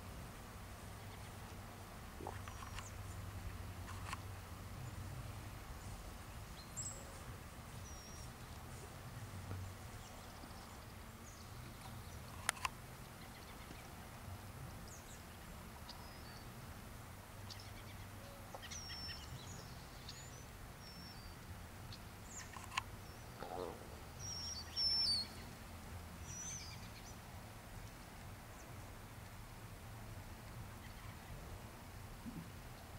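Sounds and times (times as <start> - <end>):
low steady rumble: 0.0 - 32.9
songbird chirps: 0.7 - 29.6, 30.4 - 32.9
sharp clicks: 12.3 - 12.8, 22.4 - 22.9.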